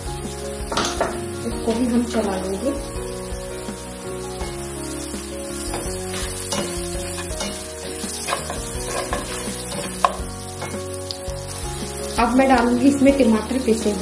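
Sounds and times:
onions sizzling in oil: 0.0 - 14.0
spatula scraping pan: 5.6 - 11.0.

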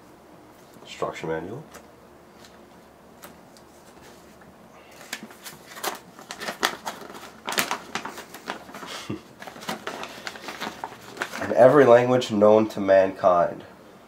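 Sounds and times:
paper crinkling and rustling: 1.7 - 12.0.

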